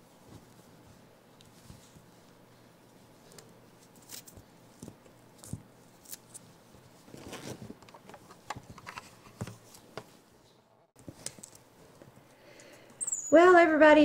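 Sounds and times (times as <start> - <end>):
monkey scrambling over blanket: 0.0 - 7.8.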